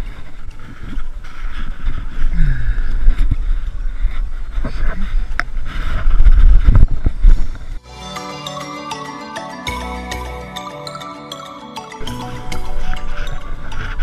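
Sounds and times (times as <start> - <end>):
rumbling wind on microphone: 0.0 - 7.8.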